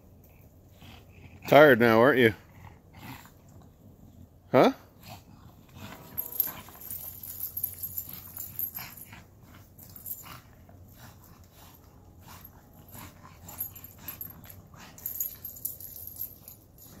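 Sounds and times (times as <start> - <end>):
dog panting hard: 4.9 - 17.0.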